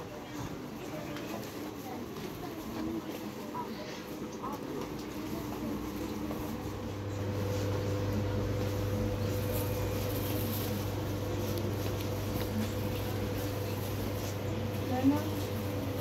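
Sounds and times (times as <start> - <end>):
indoor market background noise: 0.0 - 16.0
low machine hum: 3.3 - 16.0.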